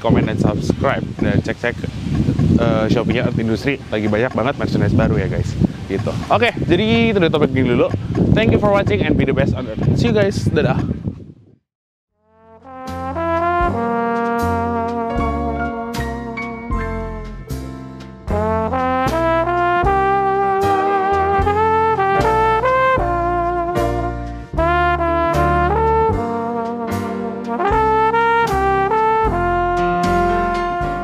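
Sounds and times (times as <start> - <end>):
brass tune over heavy bass beat: 12.2 - 31.0
sharp drum hits: 18.3 - 23.1.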